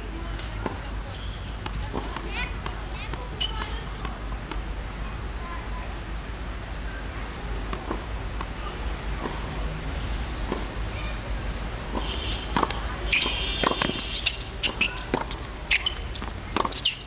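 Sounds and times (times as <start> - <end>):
shoes squeaking on court: 0.2 - 4.2, 7.6 - 9.6, 10.3 - 17.0
tennis ball bouncing: 0.2 - 4.7, 7.5 - 9.6, 10.4 - 11.2, 11.8 - 17.0
racket hitting tennis ball: 1.6 - 4.6, 7.7 - 9.6, 10.4 - 10.8, 11.8 - 17.0.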